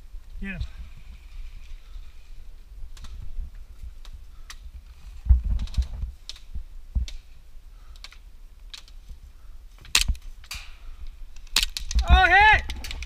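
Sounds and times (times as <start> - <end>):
low thuds of movement: 0.6 - 7.3
airsoft gun clicks: 5.6 - 9.0, 9.8 - 10.7, 11.3 - 12.0.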